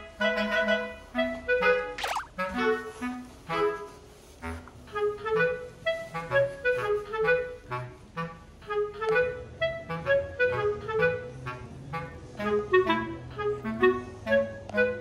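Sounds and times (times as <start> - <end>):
bouncy woodwind melody: 0.0 - 15.0.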